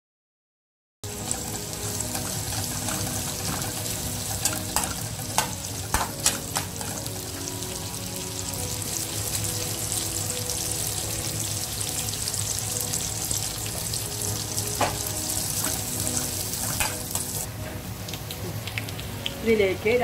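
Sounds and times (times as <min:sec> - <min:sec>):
shallots sizzling in hot oil: 0:01.1 - 0:20.0
metal spoon clicking on pan: 0:04.4 - 0:07.0.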